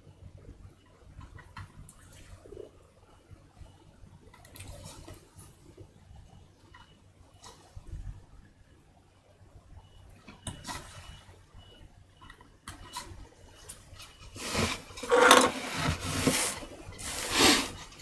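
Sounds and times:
wood scraping and rubbing: 14.3 - 18.0.

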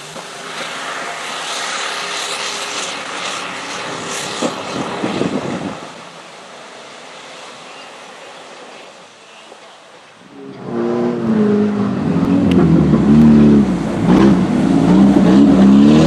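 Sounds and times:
truck engine revving: 10.3 - 16.0.

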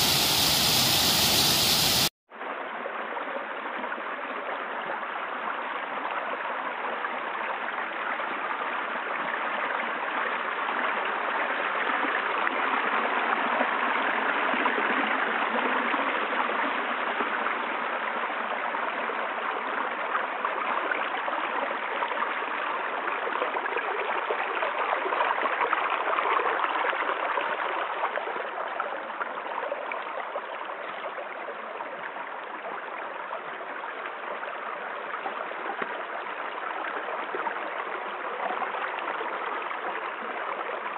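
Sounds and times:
water rushing: 0.0 - 6.7.

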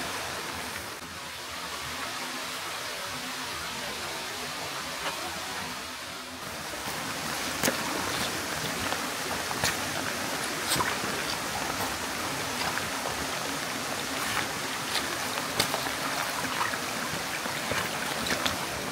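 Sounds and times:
stream flowing over rocks: 0.0 - 18.9
water splashes and drips: 6.4 - 18.9.

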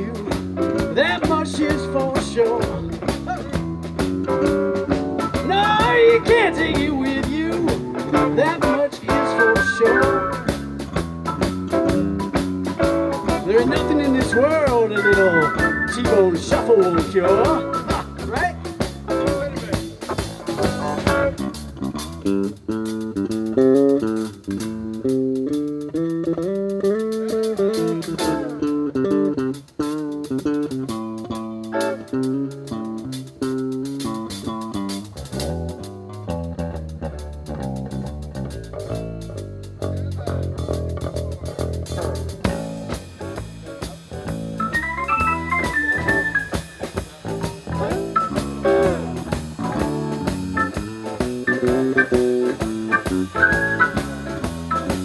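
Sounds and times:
bass guitar: 0.0 - 55.0
drum kit: 0.0 - 55.0
electric guitar lead: 0.0 - 55.0.

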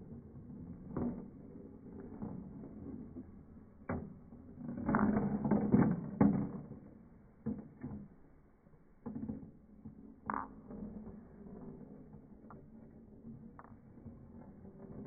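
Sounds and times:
steel balls rolling rumble: 0.0 - 15.0
balls knocking: 9.0 - 15.0.

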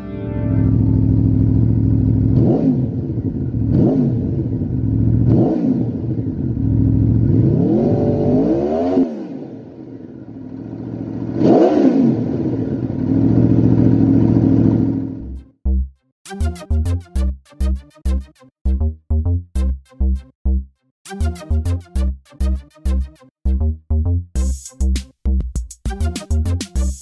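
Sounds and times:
motorcycle engine idling: 0.8 - 5.3, 6.0 - 7.4, 9.7 - 11.4
motorcycle engine revving: 0.8 - 15.4.

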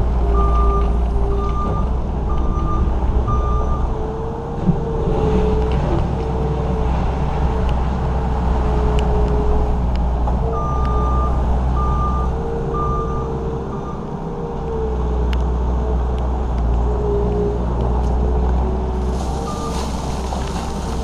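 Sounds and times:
skid steer diesel engine running: 0.0 - 15.9, 16.7 - 21.0
backup alarm beeping: 19.4 - 20.0.

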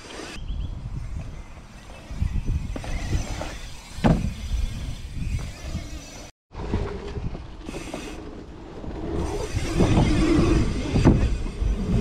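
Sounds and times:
wind buffeting microphone: 0.4 - 6.0.

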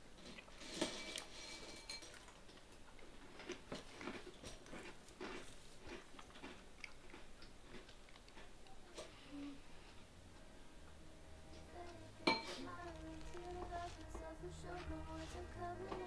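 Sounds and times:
person chewing crunchy food: 0.2 - 10.1.

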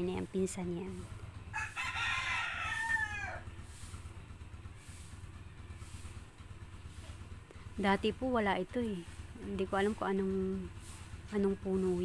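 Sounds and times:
rooster crowing: 1.5 - 3.5.

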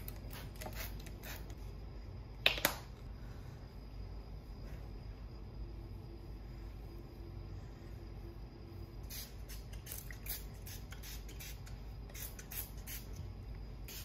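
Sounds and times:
spray bottle hissing: 0.3 - 1.6, 9.0 - 13.2.

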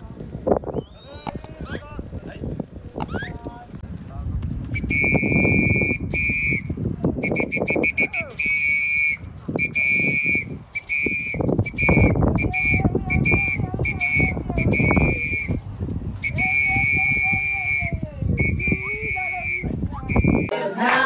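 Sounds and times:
whistle blasts: 0.7 - 1.8, 4.7 - 15.6, 16.2 - 20.6.

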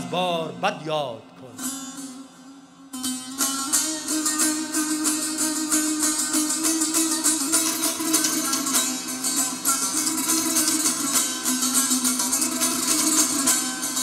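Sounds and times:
long-necked lute plucked and strummed: 0.0 - 14.0.

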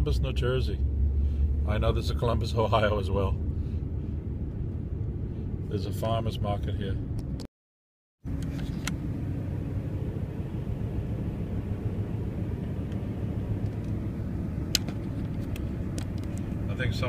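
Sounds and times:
car engine and road noise: 0.0 - 7.5, 8.2 - 17.0
sharp click: 14.7 - 16.5.

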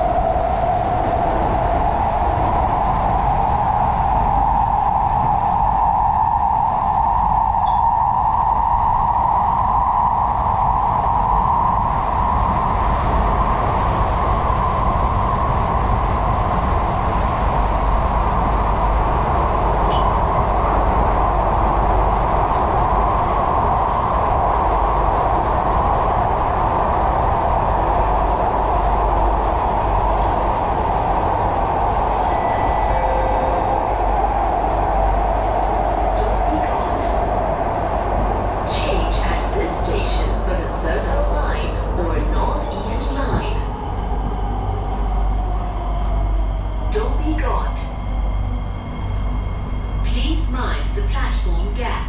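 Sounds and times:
train wheels rumbling on rail: 0.0 - 52.0
mid-pitched drone: 31.8 - 37.2.

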